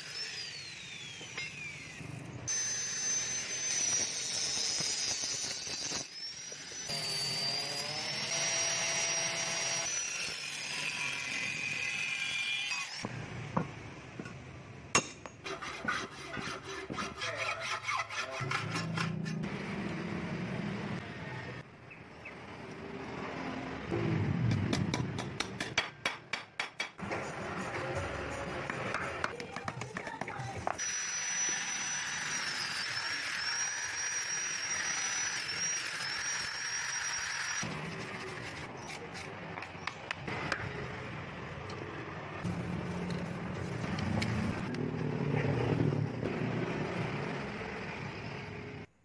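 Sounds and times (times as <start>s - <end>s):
engine rumbling: 18.9s - 25.8s, 37.7s - 48.9s.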